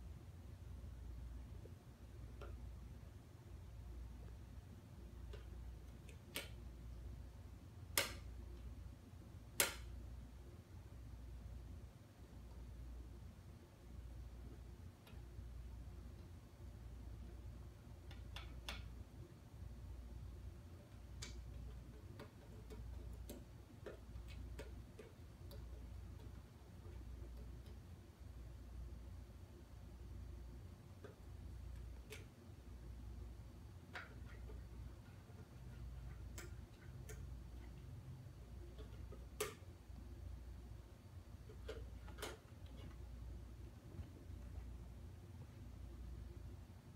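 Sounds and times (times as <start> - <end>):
steady low hum: 0.0 - 46.9.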